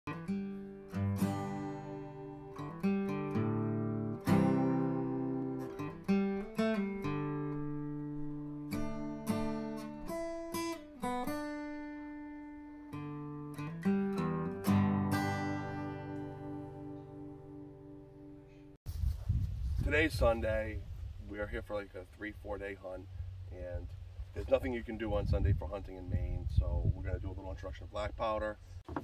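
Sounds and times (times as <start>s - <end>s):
acoustic guitar plucked notes: 0.1s - 18.8s.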